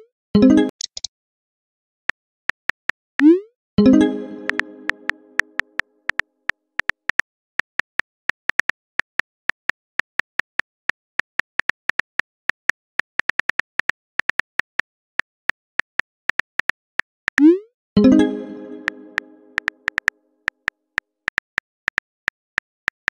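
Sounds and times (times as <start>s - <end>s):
message chime: 0.4s - 0.7s, 3.8s - 5.6s, 18.0s - 19.9s.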